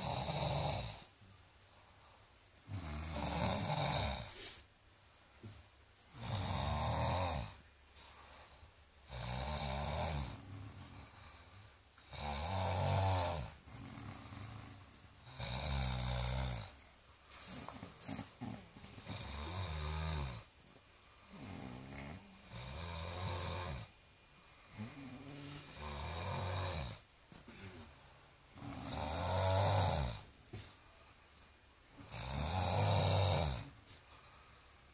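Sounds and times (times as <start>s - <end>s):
man snoring: 0.0s - 1.1s, 2.7s - 4.5s, 6.1s - 7.6s, 9.0s - 16.8s, 17.6s - 20.5s, 21.2s - 23.9s, 24.7s - 30.3s, 32.0s - 33.8s.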